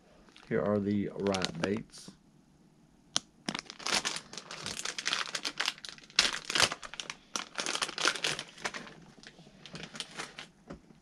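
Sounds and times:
plastic bag crinkling: 0:00.3 - 0:01.8, 0:03.4 - 0:10.5.

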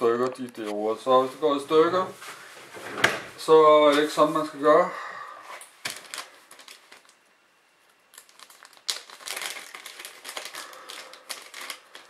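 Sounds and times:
plastic bag crinkling: 0:05.8 - 0:07.3, 0:07.9 - 0:12.0.

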